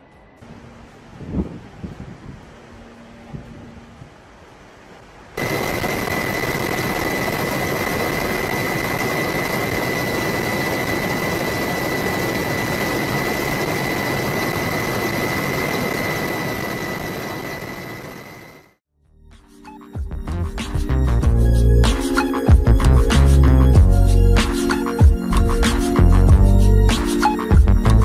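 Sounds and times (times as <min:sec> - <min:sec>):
turbine engine roaring and whining: 0:05.4 - 0:18.8.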